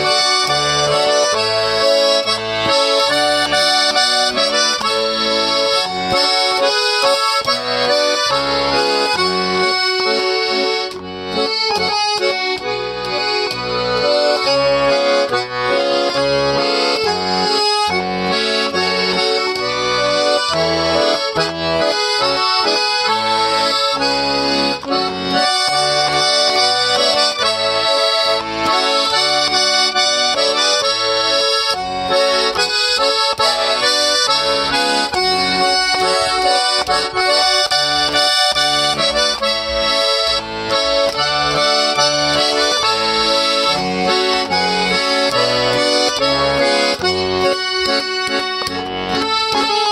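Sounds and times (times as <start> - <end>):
accordion playing a tune: 0.0 - 49.9.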